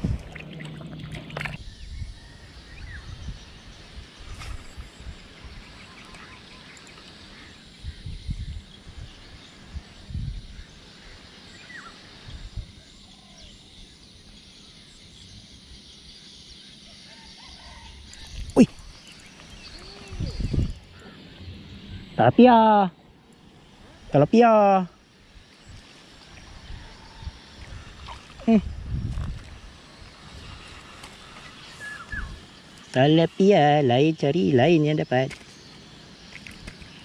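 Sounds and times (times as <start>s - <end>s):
faint bird calls: 16.8s - 22.5s, 30.9s - 32.9s
steady hiss: 18.1s - 37.0s.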